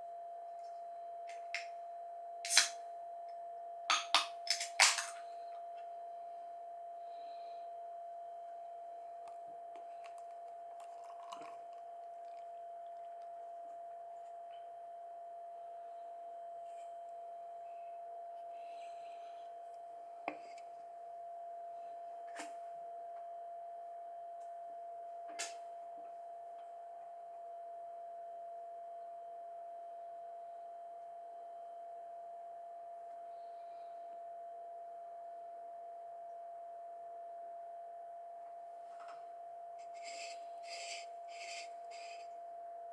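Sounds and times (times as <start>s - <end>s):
mid-pitched pure tone: 0.0s - 24.8s, 38.5s - 42.9s
high-pitched hum: 0.2s - 22.0s, 39.8s - 42.6s
can and plastic cup clicking: 2.5s - 2.8s, 3.9s - 5.2s
beer pouring into cup: 9.8s - 13.2s.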